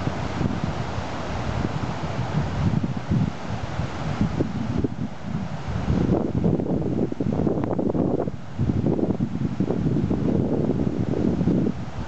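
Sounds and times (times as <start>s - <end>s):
rushing river rapids: 0.0s - 8.7s
wind buffeting microphone: 0.0s - 12.0s.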